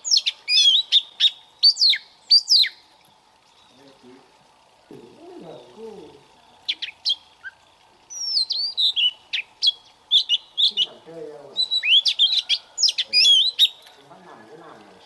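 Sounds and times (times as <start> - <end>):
magpie-robin singing: 0.0 - 2.8, 6.6 - 13.9.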